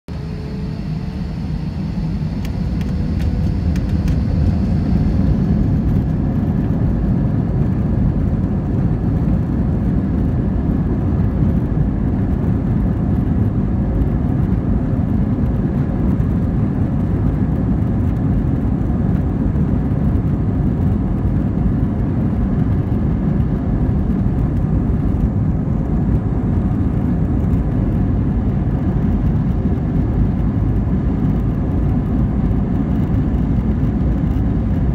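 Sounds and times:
engine and runway rumble: 0:00.1 - 0:34.9
rising engine whine: 0:00.1 - 0:34.9.

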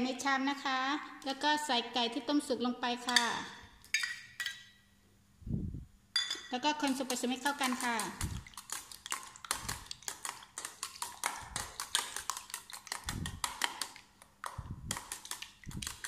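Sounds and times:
metal spoon clinking in steel bowl: 0:03.1 - 0:04.8, 0:06.2 - 0:13.6.

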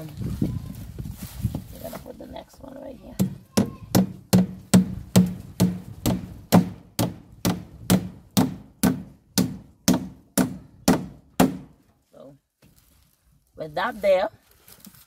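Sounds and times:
hammer hitting nail into wood: 0:03.2 - 0:11.7.

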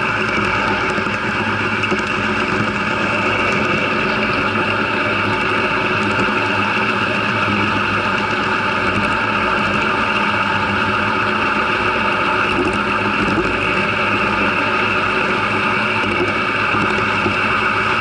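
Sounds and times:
model train motor hum: 0:00.0 - 0:18.0
wheels rumbling on rail: 0:00.0 - 0:18.0.

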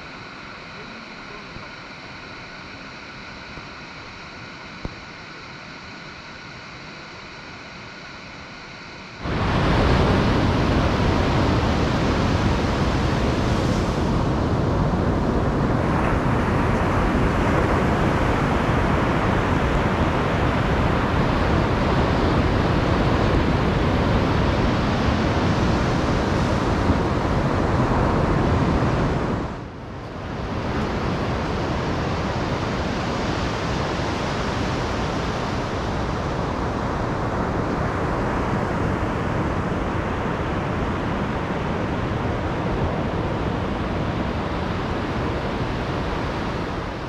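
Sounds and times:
ocean surf breaking on beach: 0:09.2 - 0:29.6
wind rumbling on microphone: 0:09.2 - 0:47.0.

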